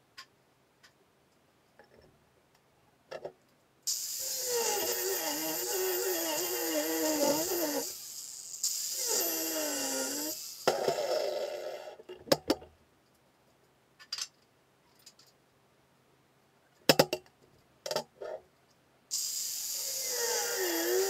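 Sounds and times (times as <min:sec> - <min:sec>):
angle grinder cutting steel: 0:03.9 - 0:11.8, 0:19.1 - 0:21.0.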